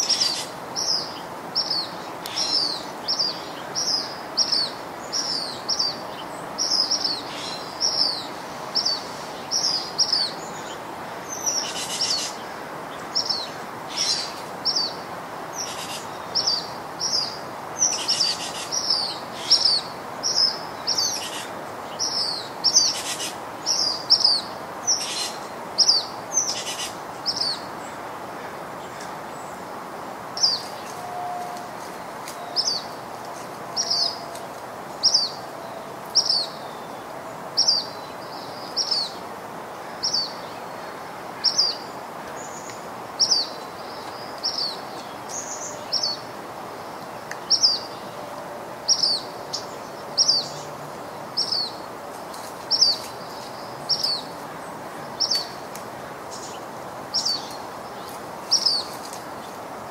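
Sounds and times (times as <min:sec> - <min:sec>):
background hiss: 0:00.0 - 0:59.9
bird chirping: 0:33.7 - 0:34.4.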